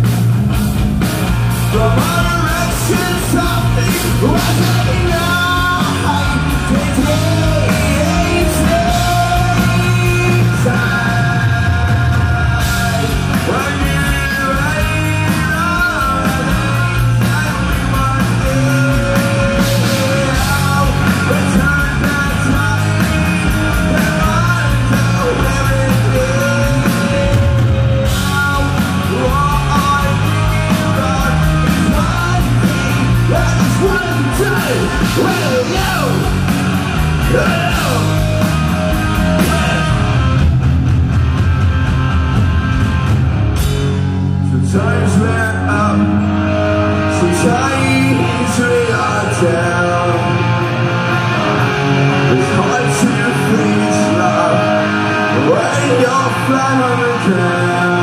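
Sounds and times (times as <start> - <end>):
distorted electric guitars: 0.0 - 58.0
drums: 0.0 - 58.0
person singing: 1.7 - 36.5, 37.1 - 40.4, 44.5 - 58.0.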